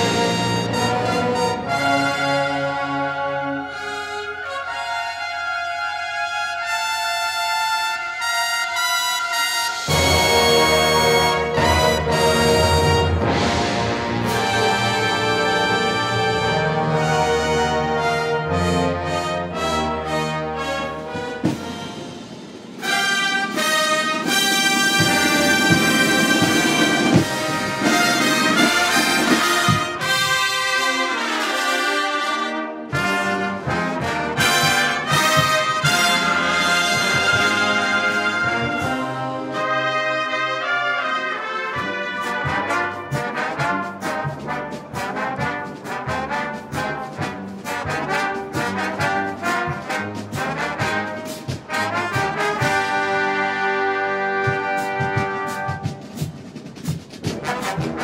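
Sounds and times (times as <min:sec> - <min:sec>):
marching brass band playing: 0:00.0 - 0:58.0
snare drum beat: 0:21.1 - 0:30.8, 0:33.0 - 0:39.1, 0:41.8 - 0:58.0.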